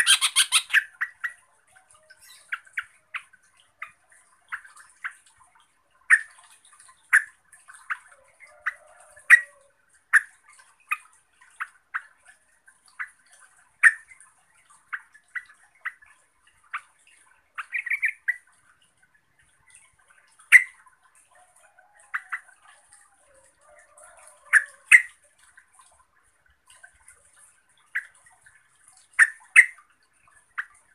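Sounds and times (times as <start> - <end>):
bird chip calls: 0.0 - 5.2, 17.6 - 18.5.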